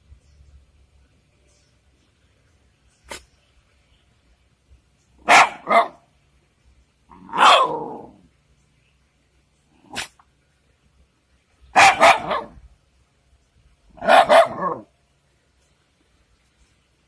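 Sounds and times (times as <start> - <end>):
dog barking: 5.2 - 6.0, 7.2 - 8.1, 11.7 - 12.6, 14.0 - 14.9.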